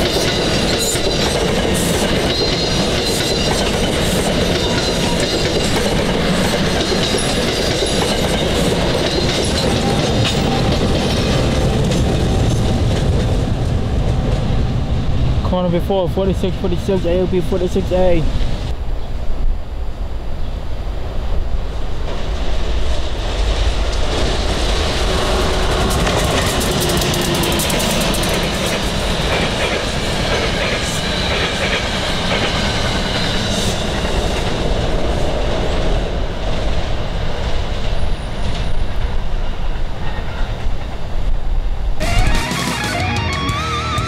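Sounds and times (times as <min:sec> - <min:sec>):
clickety-clack over rail joints: 0:00.0 - 0:14.6, 0:23.0 - 0:41.4
train wheel and rail rush: 0:00.0 - 0:43.7.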